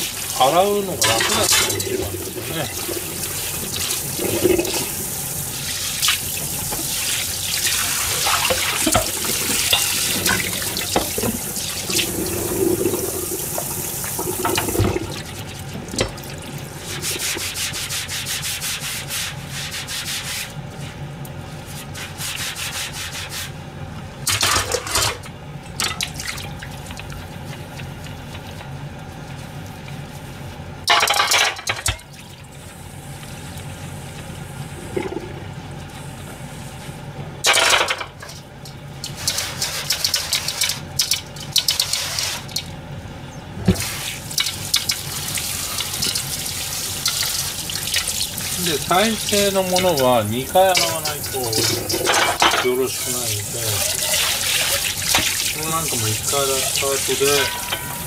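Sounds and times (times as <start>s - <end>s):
sponge scrubbing cutting board: 16.7s - 23.6s, 48.5s - 52.1s, 52.7s - 58.0s.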